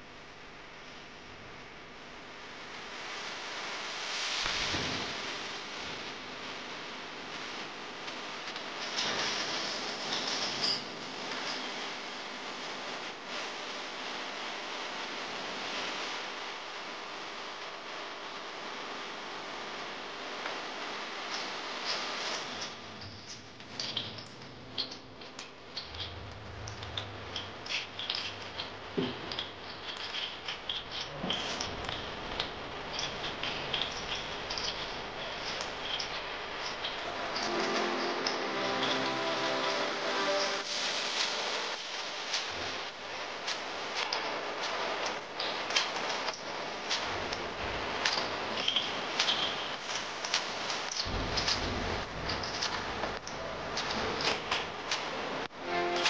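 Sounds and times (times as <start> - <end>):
oil crackling and popping: 24.8 - 37.0.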